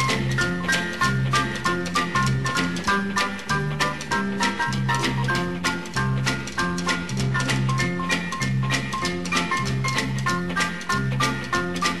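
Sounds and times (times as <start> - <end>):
upbeat instrumental dance music: 0.0 - 12.0.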